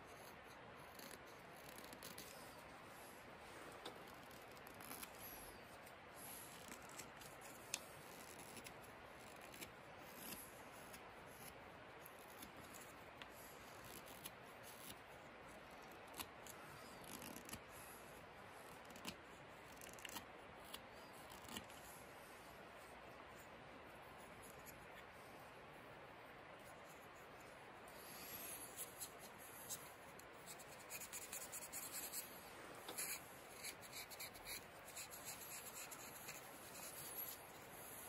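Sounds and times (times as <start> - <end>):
steady low hiss: 0.0 - 38.0
knife shaving wood: 33.0 - 37.5.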